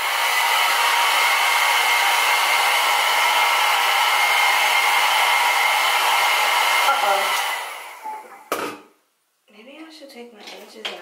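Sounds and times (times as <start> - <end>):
hair dryer blowing: 0.0 - 8.8.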